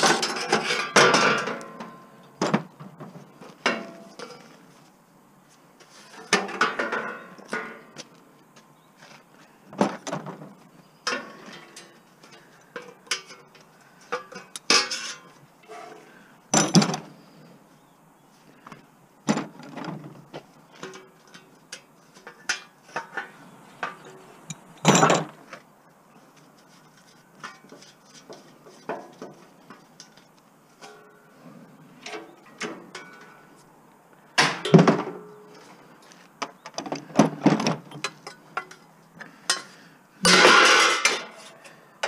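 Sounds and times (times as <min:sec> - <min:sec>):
metal barbecue parts clanking: 0:00.0 - 0:04.6, 0:06.0 - 0:08.0, 0:09.8 - 0:16.0, 0:16.6 - 0:17.3, 0:19.3 - 0:25.5, 0:27.3 - 0:33.5, 0:34.4 - 0:35.7, 0:36.4 - 0:41.8.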